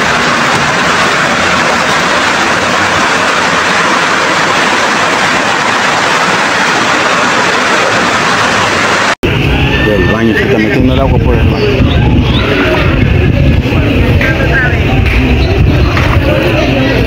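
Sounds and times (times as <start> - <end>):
floodwater rushing against a wall: 0.0 - 9.2.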